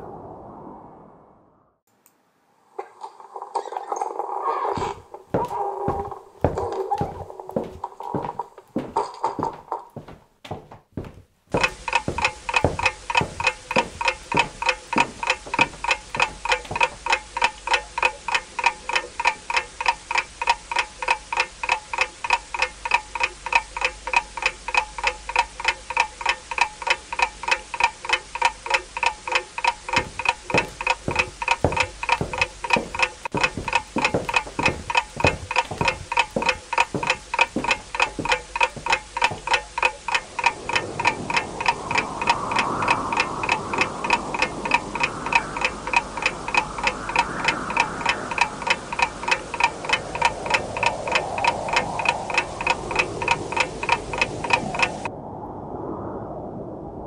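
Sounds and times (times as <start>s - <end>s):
clock ticking: 11.0s - 55.0s.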